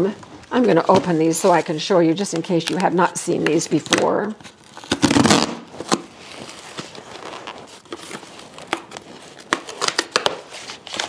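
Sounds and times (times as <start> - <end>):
cardboard crackles and clicks: 2.2 - 11.0
cardboard box tearing: 4.6 - 11.0.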